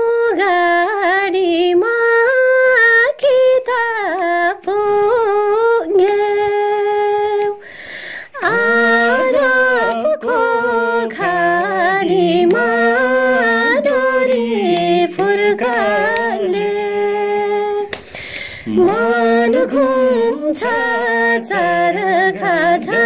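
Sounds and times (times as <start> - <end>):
woman singing unaccompanied: 0.0 - 7.6, 8.3 - 18.0, 18.6 - 23.0
man singing low: 8.6 - 10.4, 18.6 - 19.0.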